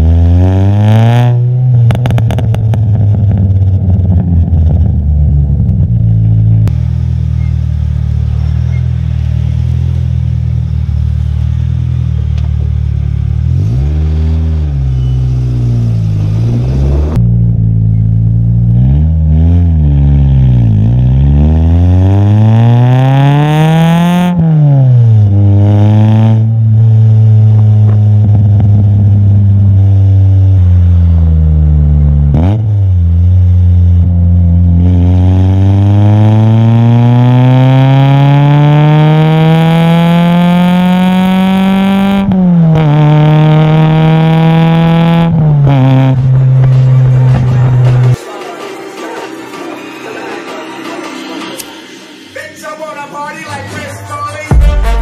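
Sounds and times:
car engine revving: 0.0 - 48.2, 53.5 - 55.0
car accelerating through gears: 13.4 - 17.2, 18.7 - 29.3, 34.6 - 48.2.

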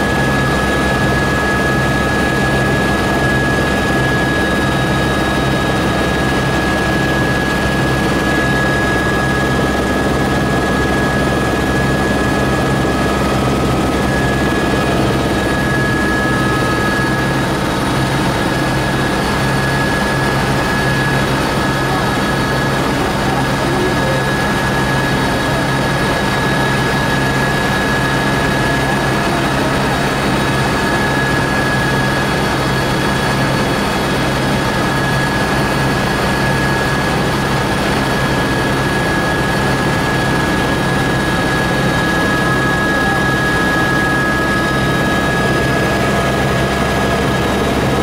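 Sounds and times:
helicopter turbine whine: 0.0 - 48.0
rotor and engine drone: 0.0 - 48.0.

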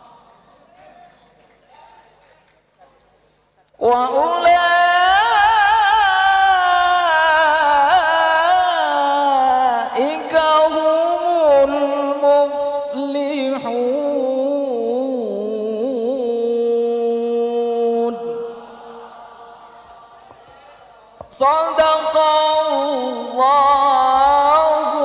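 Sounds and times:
man reciting melodically into microphone: 3.7 - 19.1, 21.2 - 25.0.

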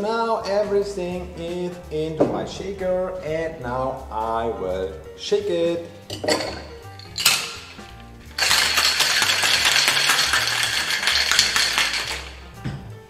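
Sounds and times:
ice rattling in shaker: 6.1 - 12.4.

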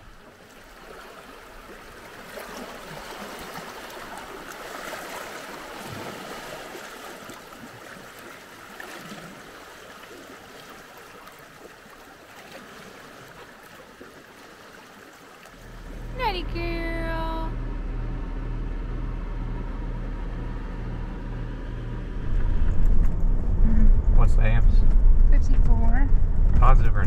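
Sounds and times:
seawater washing over rocks: 0.0 - 15.6.

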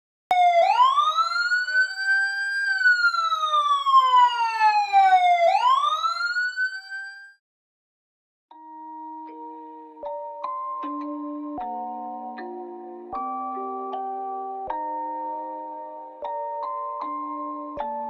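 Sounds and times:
siren-like sweeping tone: 0.3 - 7.4.

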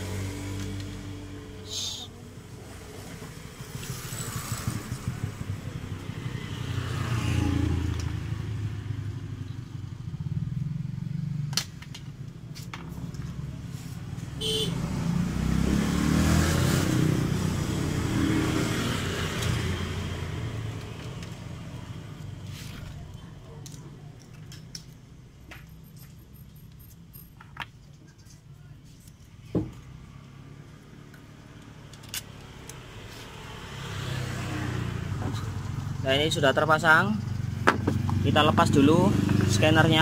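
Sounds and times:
motorcycle engine running: 0.0 - 11.6.

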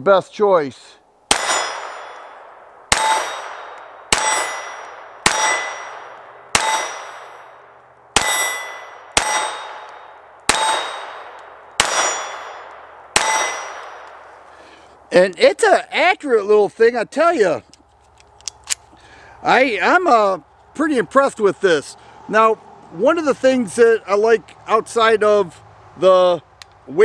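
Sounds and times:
steel plate target ringing: 1.3 - 14.1
pistol shots: 1.3 - 14.5.

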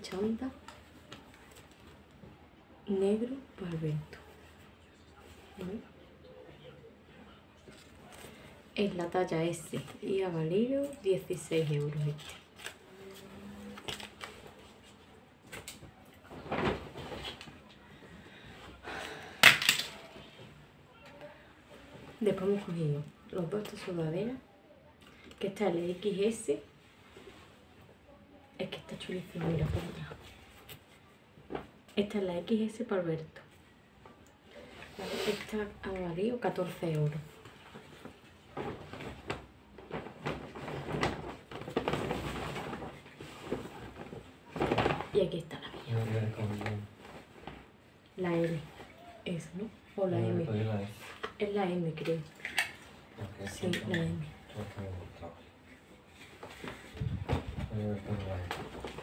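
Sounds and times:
clothes rustling: 0.0 - 5.9, 6.6 - 19.1, 19.8 - 24.4, 25.1 - 28.2, 28.8 - 59.0
plastic bags rustling: 37.0 - 51.2.

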